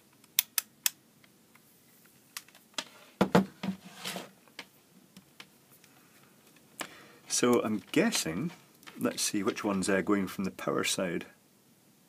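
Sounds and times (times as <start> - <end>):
heavier knocks on wooden desk: 3.2 - 3.8.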